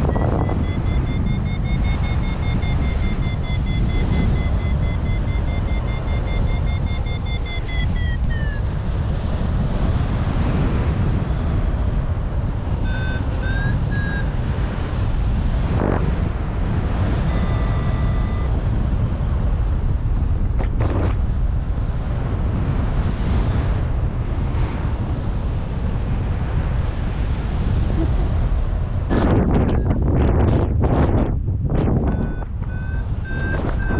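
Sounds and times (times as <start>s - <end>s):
two-tone variometer beeping: 0.0s - 9.1s, 12.6s - 15.0s, 16.2s - 18.8s, 32.0s - 33.9s
wind roaring over microphone: 0.0s - 33.9s.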